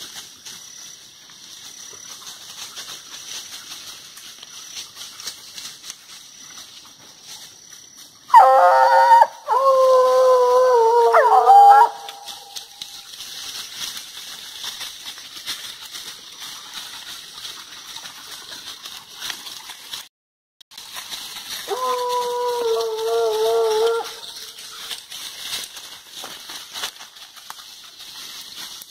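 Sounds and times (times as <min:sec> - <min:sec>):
hound baying: 0:08.3 - 0:12.7, 0:21.6 - 0:24.4.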